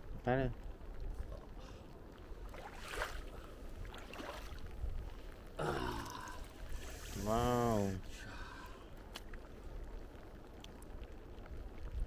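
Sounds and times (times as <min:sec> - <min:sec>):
short splashes: 0:02.4 - 0:04.7
hands sloshing in muddy water: 0:02.4 - 0:04.8.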